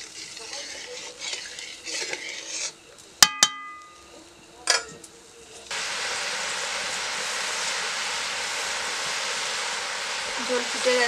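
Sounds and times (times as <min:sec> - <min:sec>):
gravy boiling hard: 0:00.0 - 0:03.2, 0:05.4 - 0:11.0
metal spatula striking a pan: 0:03.2 - 0:04.0.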